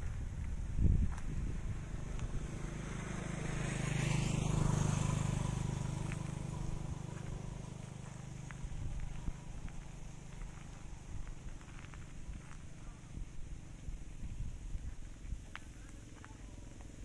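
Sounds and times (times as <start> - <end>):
vehicle engine passing by: 0.0 - 17.0.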